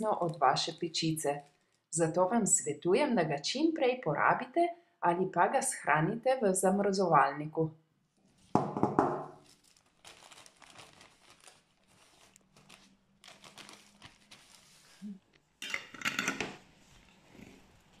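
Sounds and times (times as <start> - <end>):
bag crinkling: 9.4 - 15.1.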